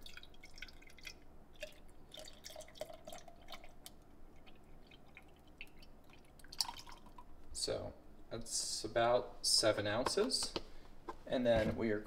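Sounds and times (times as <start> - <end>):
liquid pouring into glass over ice: 0.0 - 7.4.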